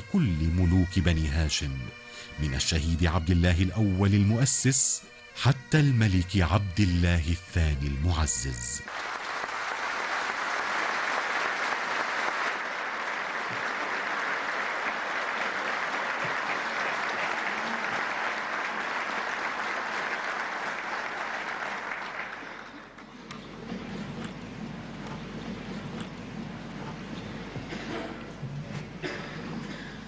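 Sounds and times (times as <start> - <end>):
audience applauding: 8.8 - 24.2.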